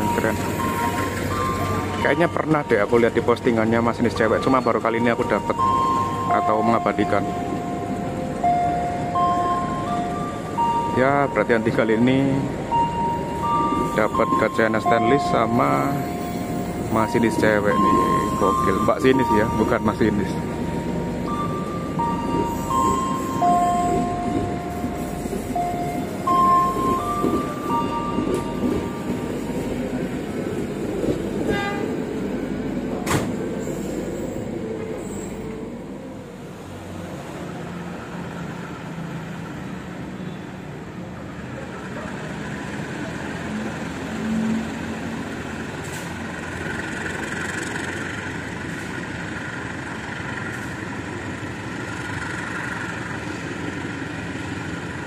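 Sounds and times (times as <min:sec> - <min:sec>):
diesel locomotive idling: 0:00.0 - 0:39.8, 0:41.2 - 0:55.0
passenger train rumbling: 0:00.0 - 0:55.0.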